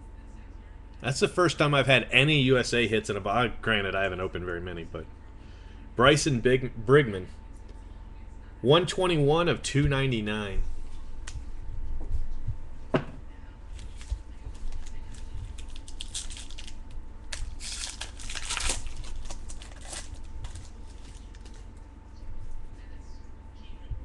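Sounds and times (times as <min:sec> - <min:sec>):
cards rustling: 0:13.7 - 0:21.8
plastic crinkling: 0:13.7 - 0:21.8.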